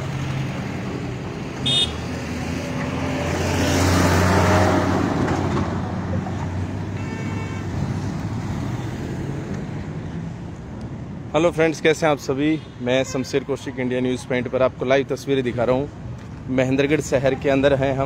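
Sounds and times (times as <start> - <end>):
car horn toot: 1.6 - 2.1, 7.0 - 7.7.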